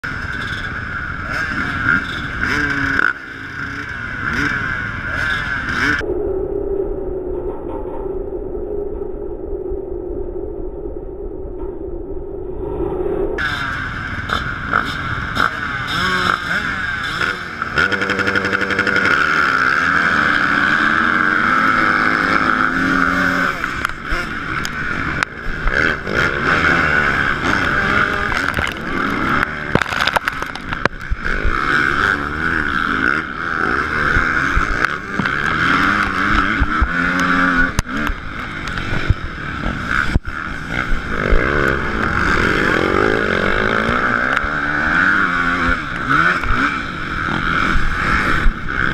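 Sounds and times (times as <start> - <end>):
dirt bike engine revving: 0.0 - 6.0, 13.4 - 48.9
other motocross bikes running: 0.0 - 6.0, 13.4 - 48.9.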